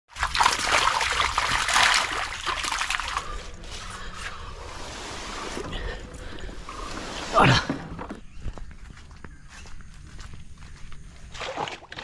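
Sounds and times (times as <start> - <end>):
water splashing and sloshing: 0.1 - 8.3, 11.2 - 12.0.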